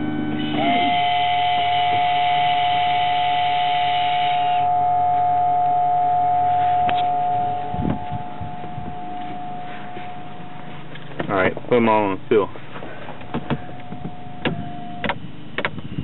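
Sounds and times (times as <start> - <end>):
valve actuator motor whirring: 0.0 - 11.0
pump whining: 0.0 - 16.0.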